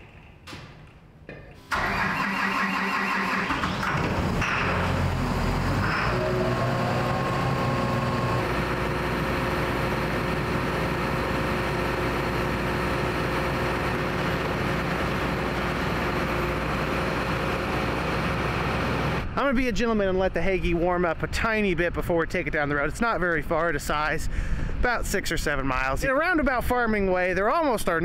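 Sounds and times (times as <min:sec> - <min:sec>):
diesel engine idling: 0:01.7 - 0:19.2.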